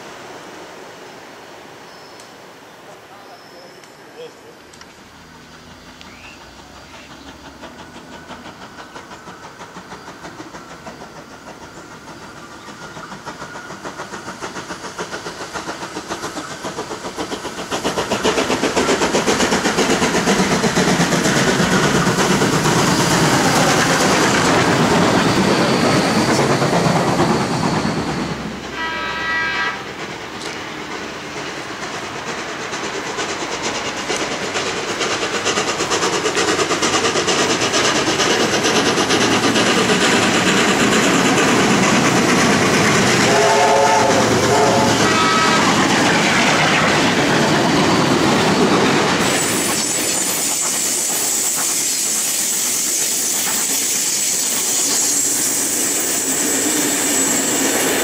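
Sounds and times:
steam train exhaust and wheels: 0:00.0 - 0:58.0
steam whistle: 0:28.7 - 0:29.9, 0:43.2 - 0:45.8.

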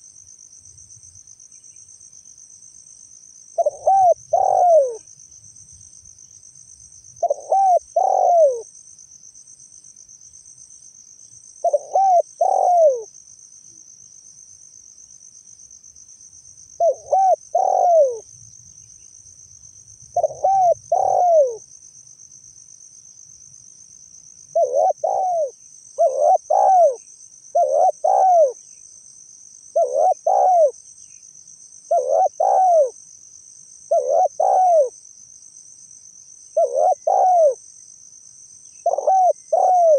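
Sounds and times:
high insect trill: 0:00.0 - 0:39.9
dove cooing: 0:03.6 - 0:05.0, 0:07.2 - 0:08.7, 0:11.6 - 0:13.1, 0:16.8 - 0:18.2, 0:20.2 - 0:21.6, 0:24.5 - 0:28.6, 0:29.7 - 0:30.8, 0:31.9 - 0:33.0, 0:33.9 - 0:35.0, 0:36.6 - 0:37.6, 0:38.8 - 0:39.9.

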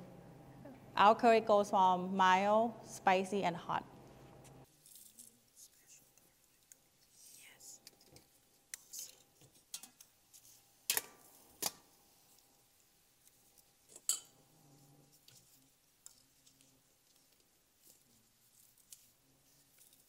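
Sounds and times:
tongs and dishes clinking: 0:07.8 - 0:11.8, 0:13.9 - 0:14.4.

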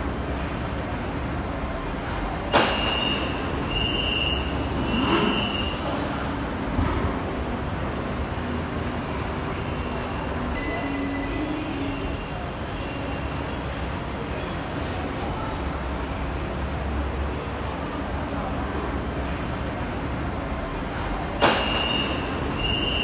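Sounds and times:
faint hubbub of voices: 0:00.0 - 0:23.0.

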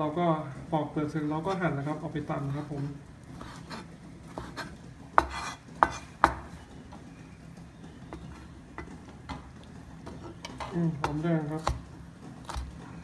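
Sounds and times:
knife chopping on cutting board: 0:03.4 - 0:06.5, 0:11.0 - 0:12.7.

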